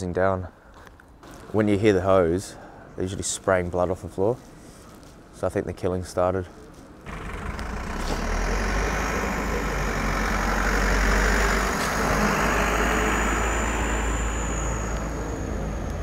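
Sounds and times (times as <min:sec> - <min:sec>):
box truck engine driving past: 0:07.1 - 0:16.0.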